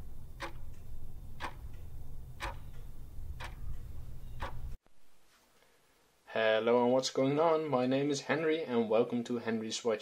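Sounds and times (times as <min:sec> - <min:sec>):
clock ticking: 0:00.3 - 0:04.8.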